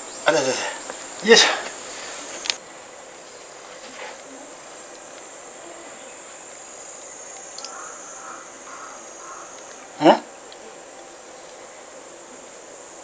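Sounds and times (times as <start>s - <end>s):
insect chorus shrilling: 0.0s - 13.0s
faint click: 7.0s - 7.8s.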